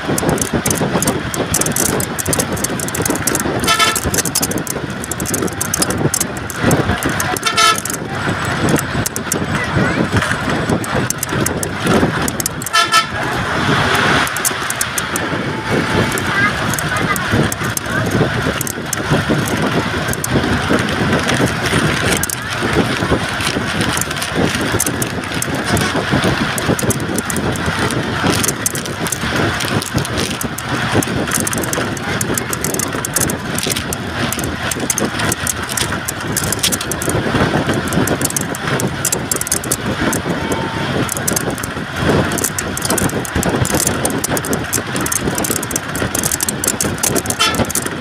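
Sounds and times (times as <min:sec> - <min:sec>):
small clicks and rattles: 0:00.0 - 0:13.0, 0:13.8 - 0:48.0
road and wind noise: 0:00.0 - 0:48.0
vehicle horn tooting: 0:03.6 - 0:04.2, 0:07.3 - 0:08.0, 0:12.7 - 0:13.3, 0:47.3 - 0:47.7.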